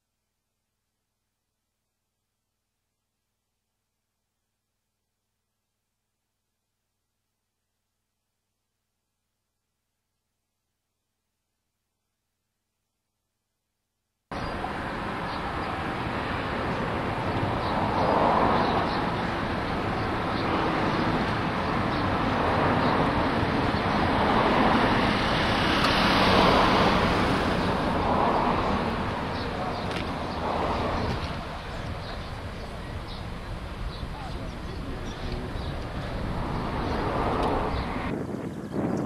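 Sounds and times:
rushing outdoor noise: 0:14.3 - 0:39.0.

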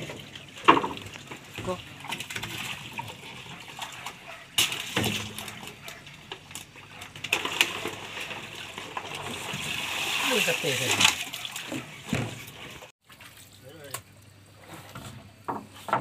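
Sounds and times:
water splashing and sloshing: 0:00.0 - 0:16.0.

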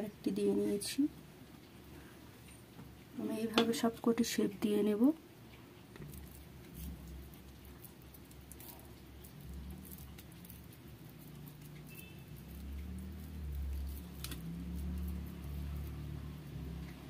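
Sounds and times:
hands patting moist mixture: 0:05.9 - 0:16.1.

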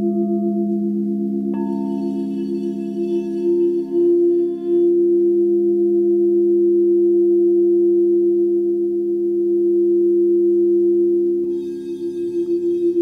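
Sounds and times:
singing bowls ringing: 0:00.0 - 0:06.6, 0:11.3 - 0:13.0.

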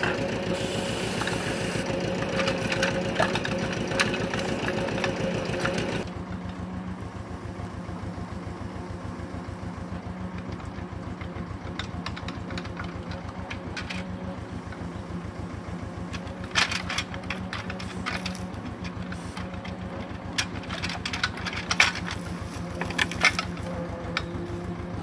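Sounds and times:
tractor diesel engine running: 0:00.0 - 0:25.0
grapple knocking against logs: 0:02.2 - 0:06.0, 0:16.1 - 0:24.7.

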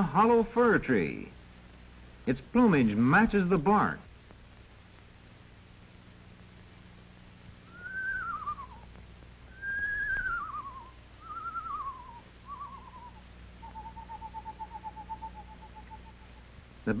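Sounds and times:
owl trill: 0:07.6 - 0:16.6
owl quavering whinnies: 0:07.7 - 0:08.9, 0:09.5 - 0:16.5.

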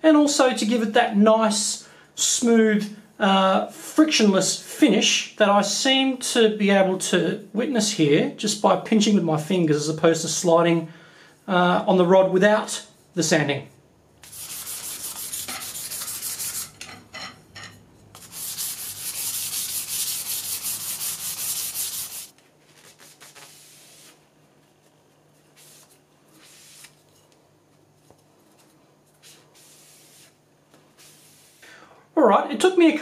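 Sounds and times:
sandpaper rubbing on tube: 0:14.2 - 0:16.8, 0:18.2 - 0:24.2, 0:25.5 - 0:27.0, 0:29.2 - 0:30.4, 0:31.0 - 0:31.6
sponge wiping tube: 0:14.2 - 0:16.8, 0:18.2 - 0:27.0, 0:29.1 - 0:31.6.

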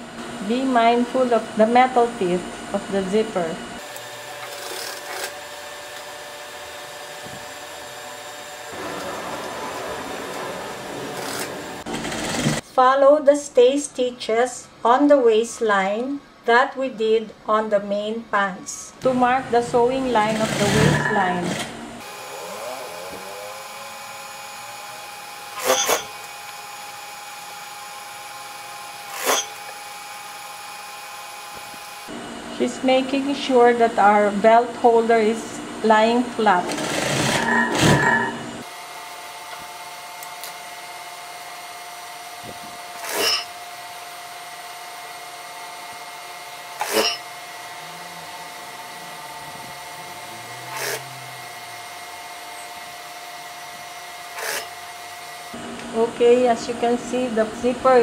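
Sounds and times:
industrial sewing machine running: 0:03.8 - 0:12.6, 0:20.0 - 0:32.1, 0:36.4 - 0:38.7, 0:46.5 - 0:52.3, 0:54.1 - 0:55.6
sewing machine stitching: 0:08.7 - 0:12.6, 0:20.2 - 0:21.8, 0:36.6 - 0:38.3, 0:50.6 - 0:51.1.

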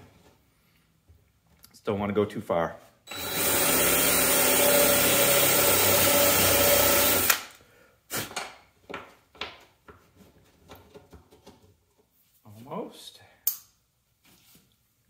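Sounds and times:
drill stopping click: 0:03.1 - 0:07.4
power drill boring into wood: 0:03.1 - 0:07.4.

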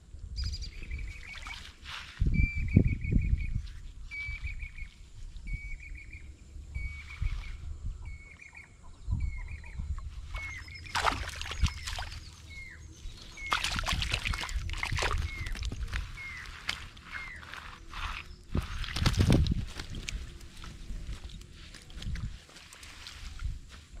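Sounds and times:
bird trilling and chirping: 0:06.8 - 0:18.9
water splashing: 0:10.4 - 0:12.5, 0:13.3 - 0:22.2.

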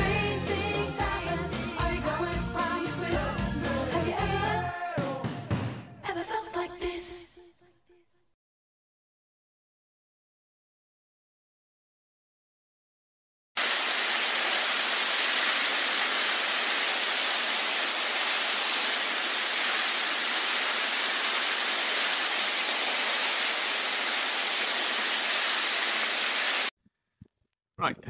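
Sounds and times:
water rushing down spillway: 0:13.6 - 0:26.7.

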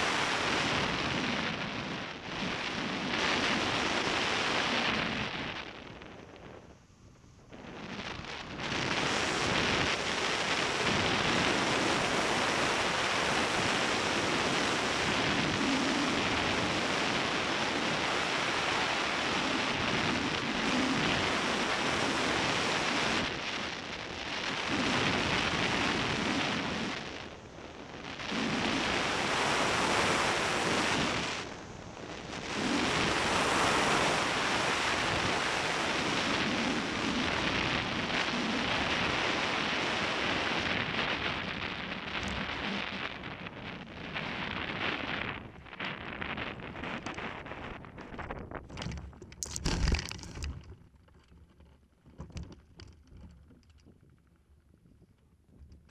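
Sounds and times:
wind roar on microphone: 0:00.0 - 0:55.9.

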